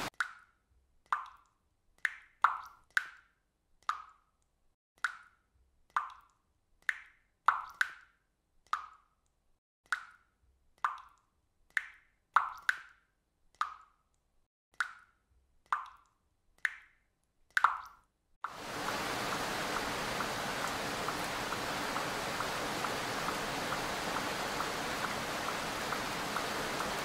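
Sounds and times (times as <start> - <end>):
water drops plopping: 17.6 - 27.0.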